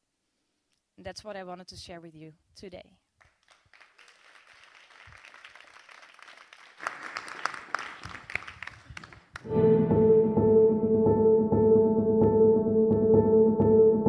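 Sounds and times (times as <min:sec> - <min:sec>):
audience applauding: 0:03.2 - 0:09.5.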